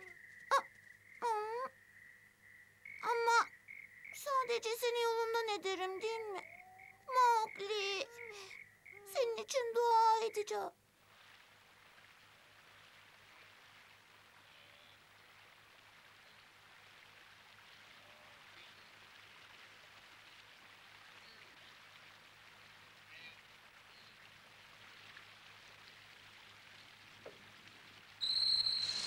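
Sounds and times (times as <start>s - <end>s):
night swamp ambience: 0.0s - 29.0s
soft chirps: 28.2s - 29.0s.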